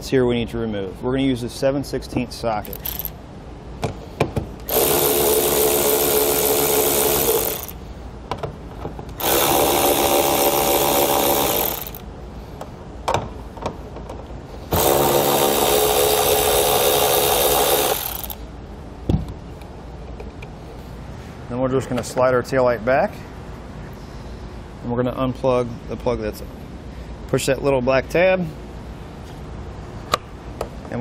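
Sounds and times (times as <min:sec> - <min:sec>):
cordless drill spinning: 0:02.7 - 0:03.2, 0:04.6 - 0:07.8, 0:09.2 - 0:12.0, 0:14.7 - 0:18.4.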